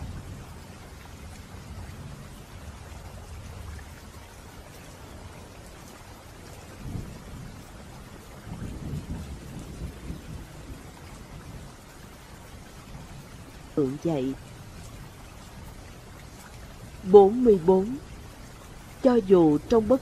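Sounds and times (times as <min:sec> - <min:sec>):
steady rain: 0:00.0 - 0:20.0
thunder rolling: 0:08.5 - 0:11.7.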